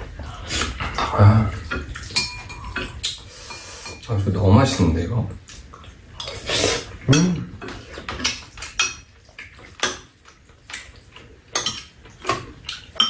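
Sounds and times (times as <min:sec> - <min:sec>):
spoons clinking against ceramic bowls: 0:01.0 - 0:04.1, 0:11.5 - 0:11.9.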